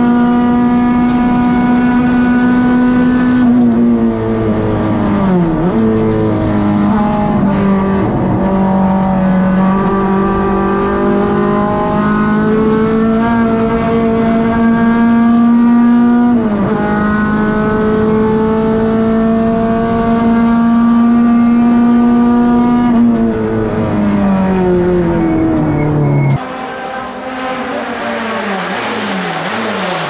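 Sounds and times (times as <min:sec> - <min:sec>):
race car engine revving high: 0:00.0 - 0:30.0.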